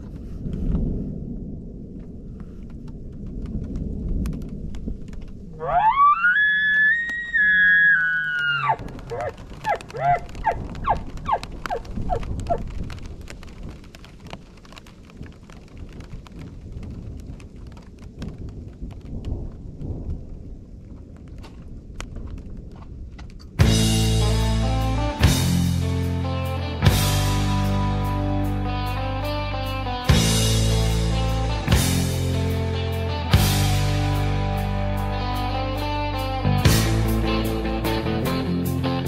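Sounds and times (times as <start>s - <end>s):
wind noise: 0.0s - 27.1s
rain: 0.0s - 38.9s
elk bugling: 5.5s - 12.6s.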